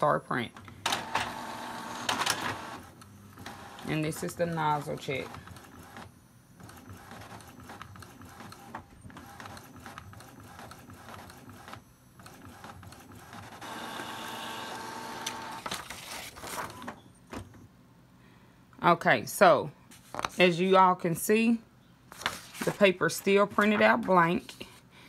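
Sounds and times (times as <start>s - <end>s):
printer motor whine: 0.8s - 3.9s, 5.5s - 17.0s.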